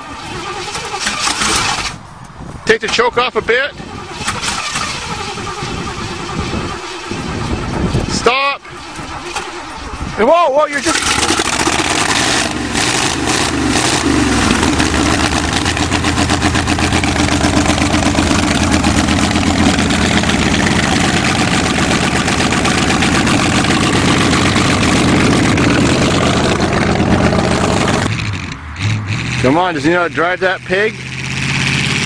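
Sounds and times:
car engine running: 3.7 - 32.0
engine pops: 10.8 - 29.2.

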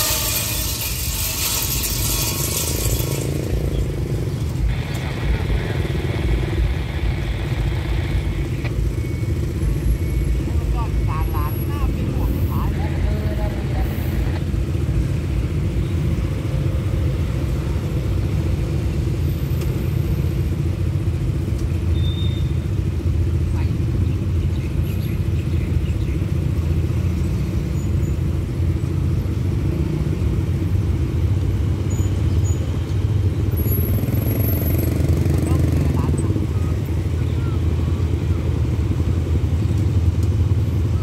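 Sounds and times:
vehicle moving up: 0.0 - 15.4
motorcycle and car engines idling: 0.0 - 41.0.

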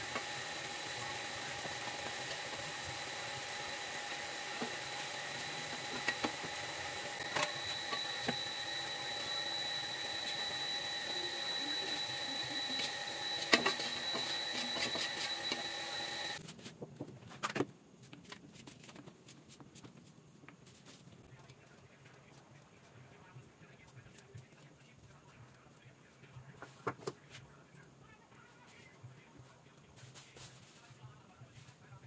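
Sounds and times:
oil sizzling in a wok: 0.0 - 12.2.

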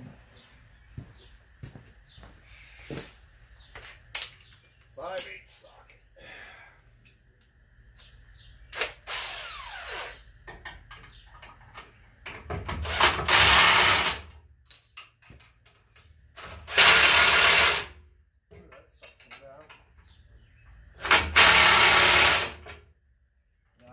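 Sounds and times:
clicks of tools and hardware: 3.8 - 5.8
cordless power tool driving bolts: 12.6 - 14.3, 16.4 - 17.9, 21.0 - 22.7.

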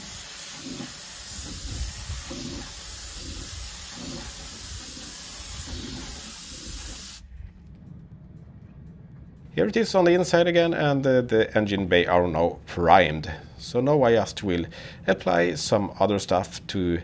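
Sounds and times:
spray gun hissing: 0.0 - 7.2.

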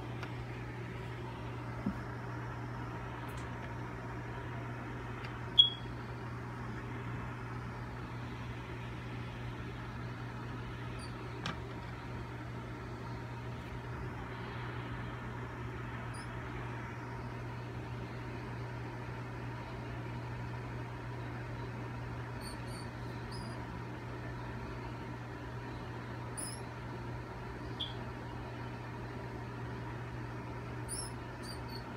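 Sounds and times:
steady low hum: 0.0 - 31.9
faint high chirps: 5.6 - 5.9
sharp high squeak: 22.4 - 23.6, 26.4 - 26.7, 30.9 - 31.8.

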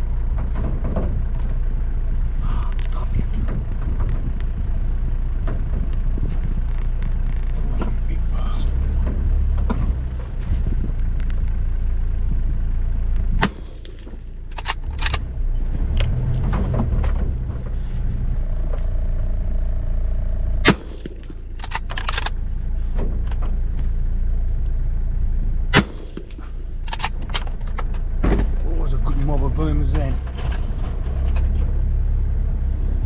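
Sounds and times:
vehicle engine idling: 0.0 - 33.0
rifle shots: 20.6 - 22.2, 25.7 - 27.1.

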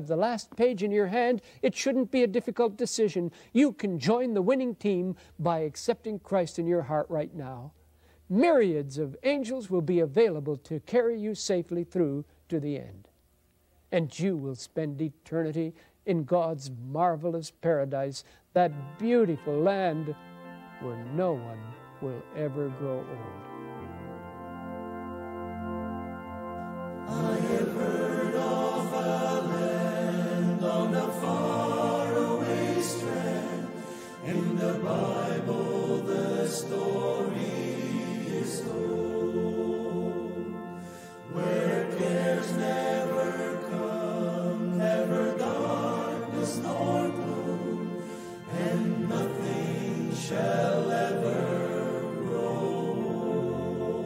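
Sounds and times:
male vocal ensemble singing: 27.0 - 54.0.

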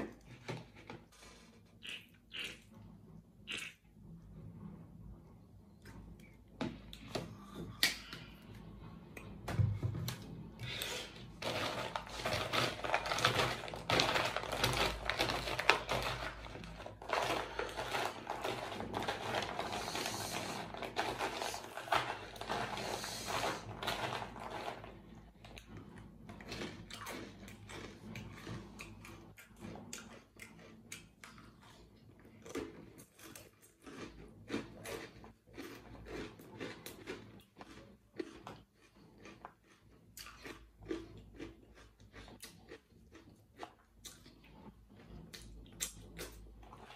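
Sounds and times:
crunchy bread pieces crackling: 10.6 - 25.8.

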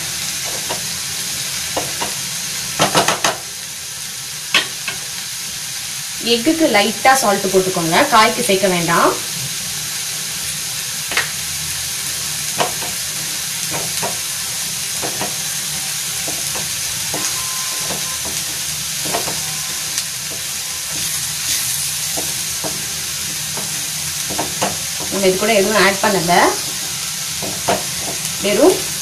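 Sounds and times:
egg sizzling in oil: 0.0 - 29.0
spatula scraping and tapping pan: 12.6 - 13.1, 13.7 - 14.3, 15.0 - 15.5, 16.2 - 25.2, 26.6 - 28.3.

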